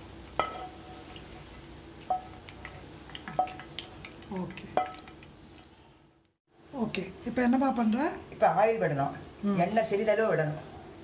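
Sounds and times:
faint frying sizzle: 0:00.0 - 0:06.0.

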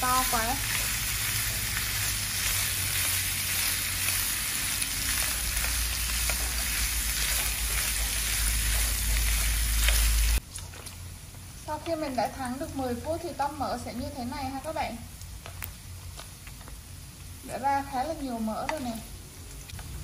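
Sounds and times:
pork fat sizzling in a pan: 0:00.0 - 0:20.0
chopsticks ticking against pan: 0:05.3 - 0:10.1.

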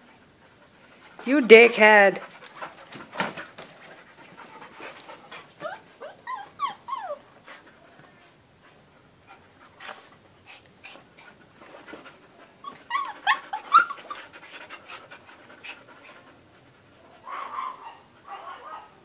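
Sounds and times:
dog panting: 0:00.0 - 0:18.8
dog yips and whines: 0:05.6 - 0:07.2, 0:12.6 - 0:14.2, 0:17.3 - 0:18.9.

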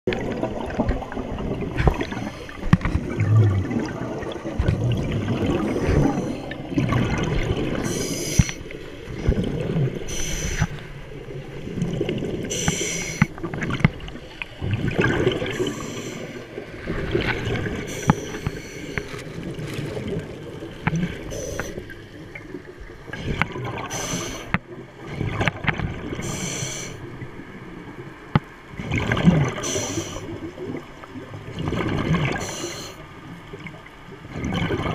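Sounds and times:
underwater gurgling and sloshing: 0:00.0 - 0:34.9
hissing bubble bursts: 0:00.4 - 0:10.8, 0:11.8 - 0:13.3, 0:23.1 - 0:24.5.

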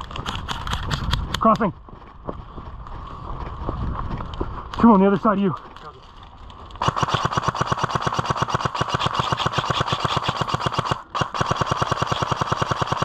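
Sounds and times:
airsoft gun firing full-auto: 0:06.8 - 0:13.0.

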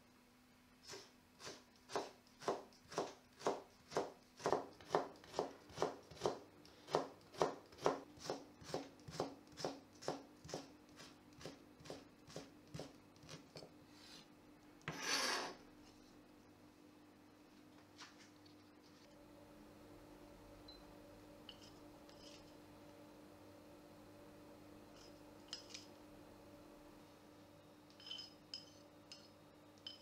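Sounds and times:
knife blade scraping board: 0:14.8 - 0:15.6.

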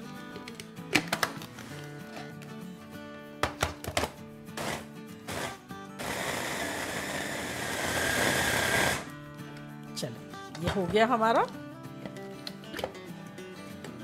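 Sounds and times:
food processor motor whining: 0:04.6 - 0:09.1.

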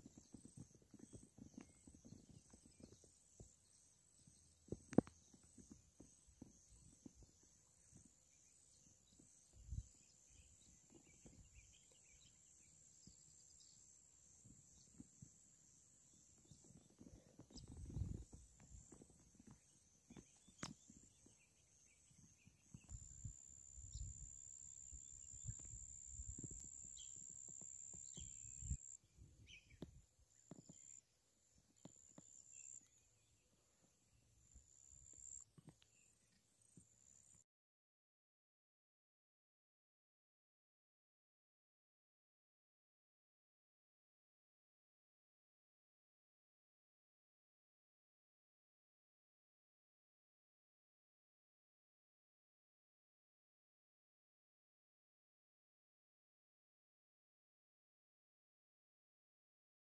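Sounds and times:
faint bird chirps: 0:00.0 - 0:37.4.

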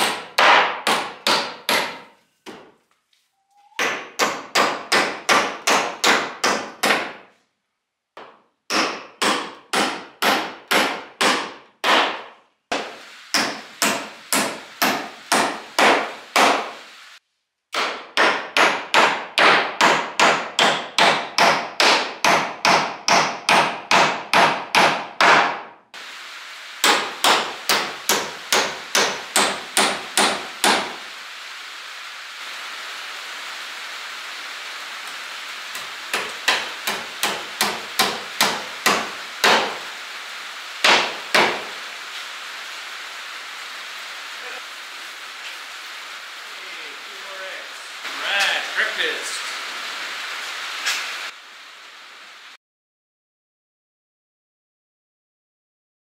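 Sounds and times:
hammer driving nails into wood: 0:00.0 - 0:02.7, 0:03.8 - 0:07.2, 0:08.2 - 0:16.7, 0:17.7 - 0:25.7, 0:26.8 - 0:30.9, 0:36.1 - 0:39.8
light rain on a metal roof: 0:12.5 - 0:18.1, 0:26.0 - 0:52.6.

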